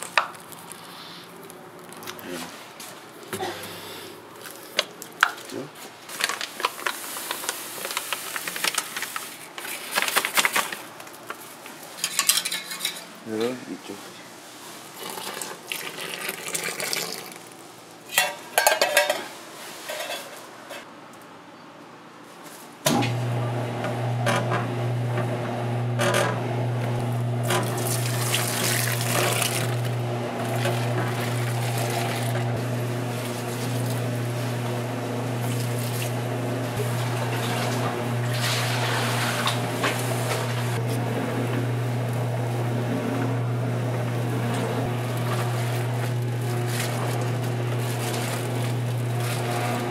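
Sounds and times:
utensils clinking on bowl: 12.0 - 13.1, 18.1 - 19.3
electric dough mixer humming: 22.9 - 49.9.

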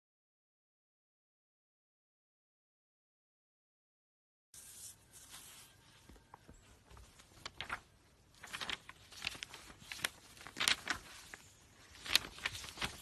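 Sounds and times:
puppy nibbling paper: 8.4 - 11.4.

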